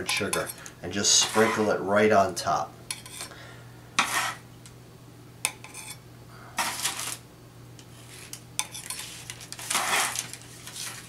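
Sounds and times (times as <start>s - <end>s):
parchment rustling: 0.0s - 1.8s, 6.6s - 7.2s, 7.9s - 11.0s
spatula scraping baking sheet: 0.0s - 1.8s, 2.9s - 3.3s, 4.0s - 4.4s, 5.6s - 6.0s, 6.6s - 7.2s, 7.9s - 11.0s.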